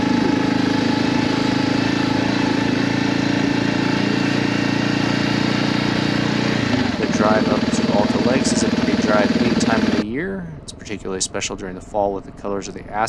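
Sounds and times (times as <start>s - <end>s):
motorcycle engine running steadily: 0.0s - 10.0s.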